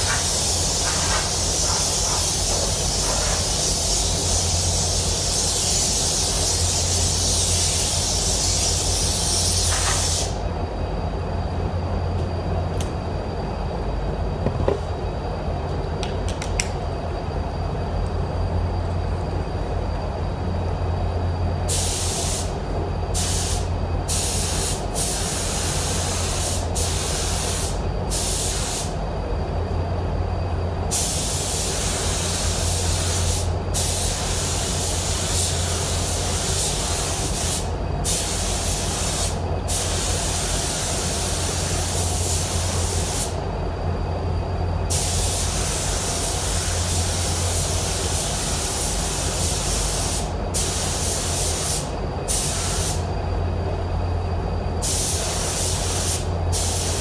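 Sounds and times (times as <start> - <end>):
paint spray gun hissing: 0.0 - 10.4, 21.7 - 22.5, 23.2 - 28.9, 30.9 - 43.4, 44.9 - 53.0, 54.8 - 57.0
steady low hum: 0.0 - 57.0.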